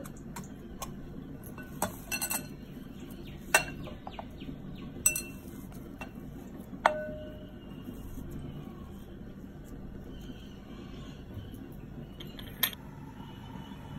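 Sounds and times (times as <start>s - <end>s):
metal cylinder clinking on glass bowl: 1.6s - 2.6s, 5.0s - 6.1s.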